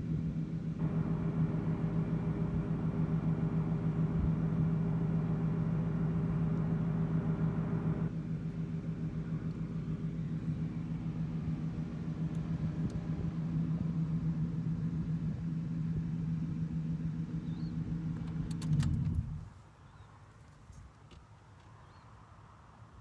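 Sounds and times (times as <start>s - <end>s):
car engine running: 0.0s - 20.1s.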